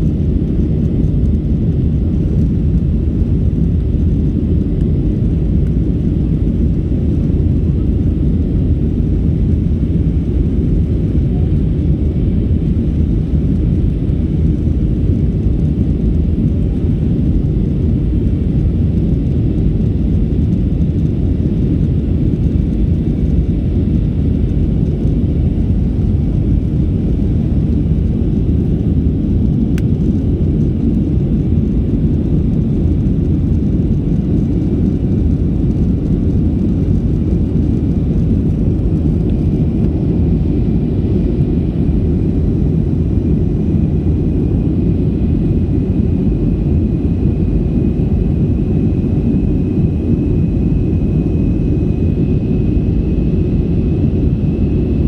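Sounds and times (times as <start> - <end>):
airliner cabin rumble: 0.0 - 55.0.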